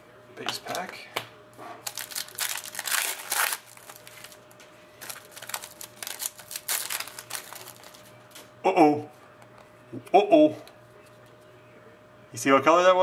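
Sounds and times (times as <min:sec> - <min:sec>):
foil wrapper crinkling and tearing: 0:01.8 - 0:04.4, 0:05.0 - 0:08.1.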